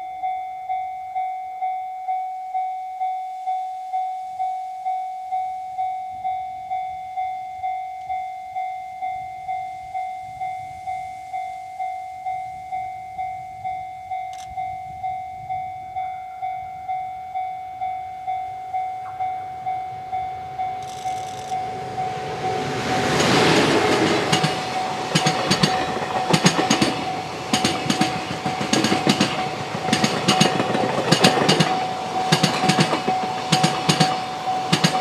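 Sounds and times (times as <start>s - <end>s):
level crossing alarm dinging: 0.0s - 35.0s
train rumble: 12.3s - 35.0s.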